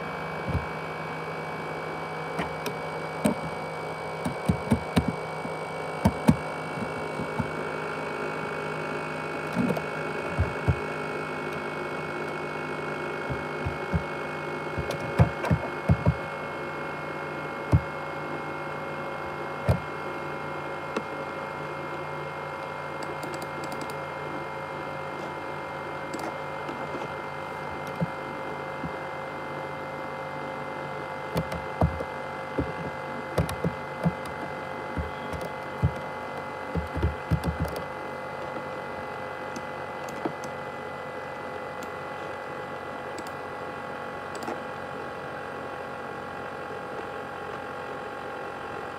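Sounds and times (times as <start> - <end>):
laptop cooling fan whine: 0.0 - 48.9.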